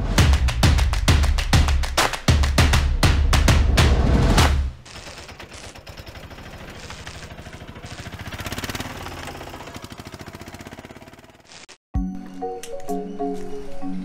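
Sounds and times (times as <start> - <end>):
fast digital crackle: 6.7 - 8.2.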